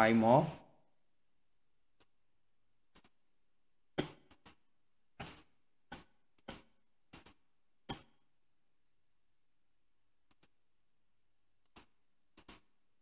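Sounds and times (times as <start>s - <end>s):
computer mouse clicking: 2.9s - 3.2s, 10.2s - 10.6s, 11.6s - 12.8s.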